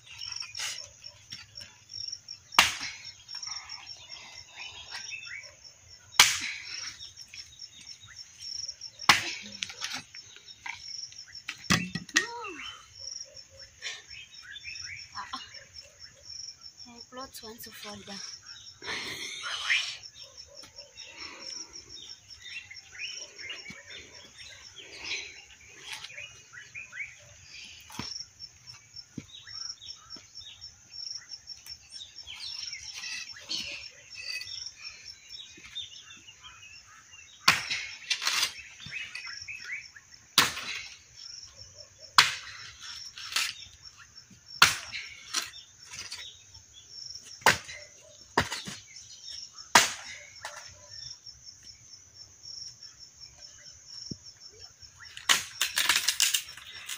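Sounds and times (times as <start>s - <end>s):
birds chirping: 0.0s - 56.9s
insect chirring: 0.0s - 56.9s
axe chopping firewood: 2.5s - 3.1s, 6.2s - 6.9s, 9.1s - 10.0s, 11.5s - 12.4s, 37.4s - 39.3s, 40.4s - 41.0s, 42.2s - 42.6s, 44.6s - 46.1s, 47.4s - 48.9s, 49.7s - 50.7s, 55.2s - 56.3s.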